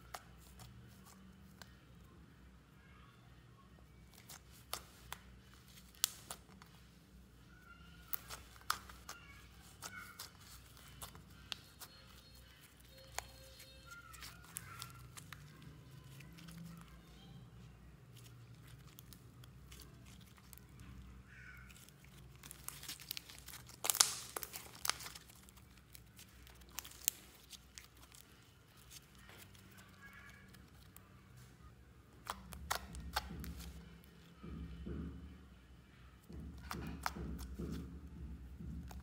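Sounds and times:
slime crackling and popping: 4.0 - 6.8, 7.9 - 17.2, 18.1 - 31.1, 32.1 - 33.9, 36.4 - 37.8.

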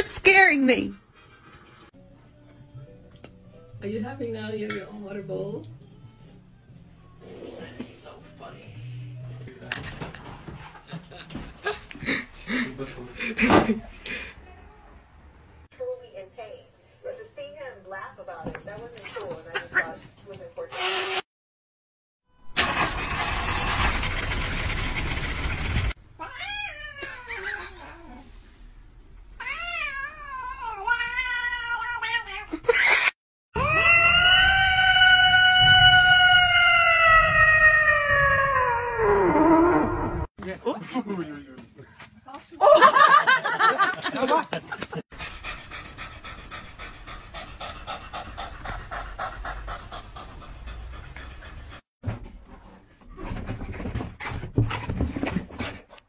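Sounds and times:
loud rough noise: 22.6 - 26.0
cat yowling: 26.2 - 28.2, 29.4 - 32.5, 33.6 - 40.3
cat panting: 45.1 - 51.9.

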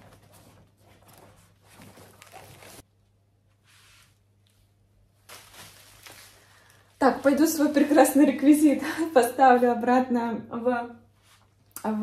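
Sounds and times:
soft rustles: 0.0 - 2.8, 3.5 - 7.9.

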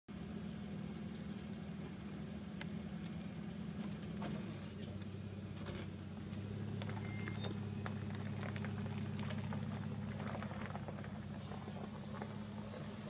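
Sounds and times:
low motor hum: 0.1 - 13.0
light clicks and crackles: 2.6 - 12.9.

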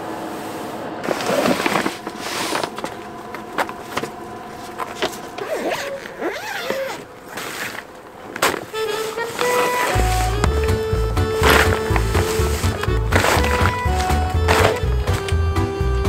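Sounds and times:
zipper: 1.0 - 2.6, 5.4 - 7.9, 8.7 - 10.7, 11.4 - 15.2
bag rustling: 1.0 - 15.4
buckles ticking: 2.7 - 15.7.

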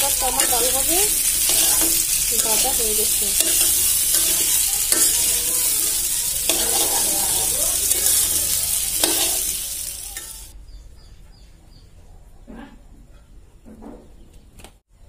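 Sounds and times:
metal spatula scraping and clattering: 0.0 - 10.5
vegetables sizzling in oil: 0.0 - 10.6.

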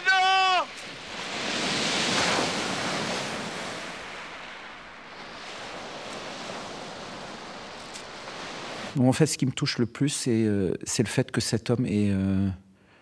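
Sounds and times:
waves breaking on pebble beach: 0.0 - 9.0.

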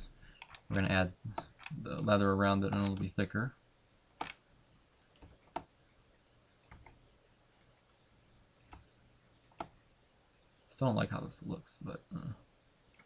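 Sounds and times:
mouse and keyboard clicks: 0.4 - 1.8, 8.6 - 10.6.

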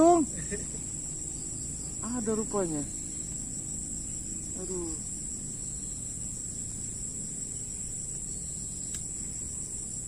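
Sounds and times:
insects trilling: 0.0 - 10.0.

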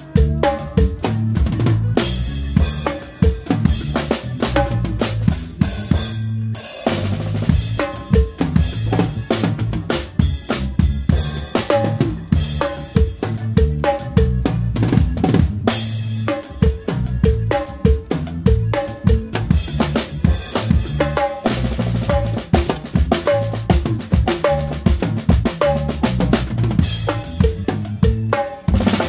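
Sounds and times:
band playing along: 0.0 - 29.0
drum kit playing a groove: 0.0 - 29.0.

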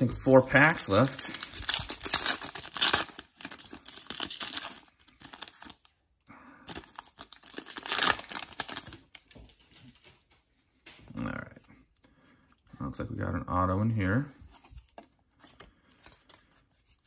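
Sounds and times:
cards rustling: 0.0 - 6.0, 6.7 - 9.4, 14.3 - 17.0
foil wrapper crinkling and tearing: 0.0 - 6.0, 6.6 - 9.4.

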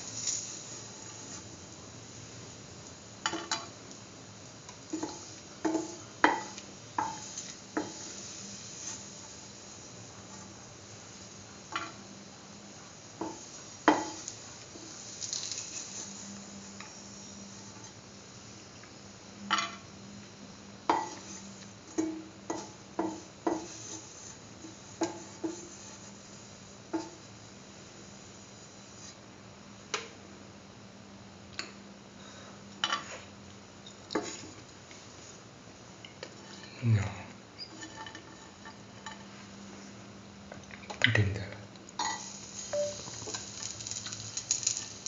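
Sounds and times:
spatula scraping pan: 25.0 - 26.2.

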